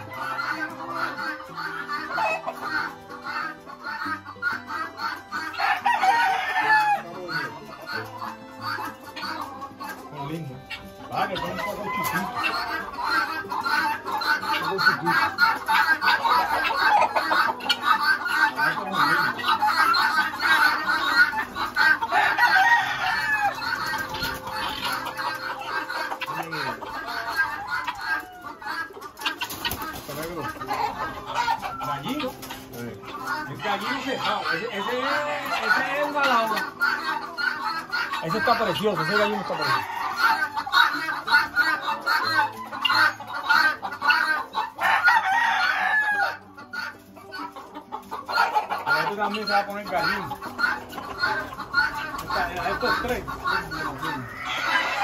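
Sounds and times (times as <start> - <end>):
roosters clucking and crowing: 0.0 - 55.0
rooster crowing: 5.6 - 7.0, 22.1 - 23.6, 44.8 - 46.2.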